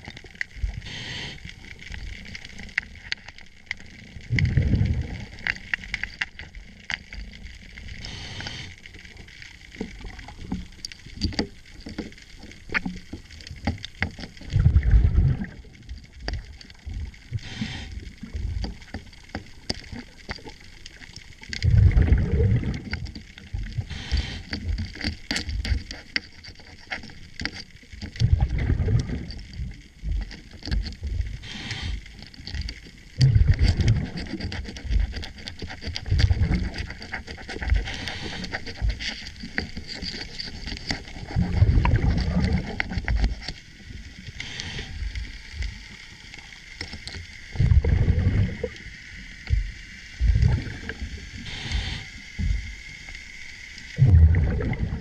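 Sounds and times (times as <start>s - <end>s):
scuba regulator breathing underwater: 0.7s - 1.7s, 8.0s - 8.9s, 17.3s - 18.2s, 23.8s - 24.7s, 31.4s - 32.2s, 37.6s - 39.2s, 44.3s - 45.2s, 50.2s - 52.6s
exhale bubbling rush: 0.8s - 1.5s, 4.3s - 5.3s, 8.0s - 8.8s, 14.5s - 15.6s, 17.3s - 18.1s, 21.6s - 22.9s, 28.2s - 29.3s, 31.4s - 32.0s, 33.2s - 34.2s, 41.3s - 42.8s, 44.4s - 45.1s, 47.5s - 48.9s, 50.2s - 52.3s, 54.0s - 55.0s.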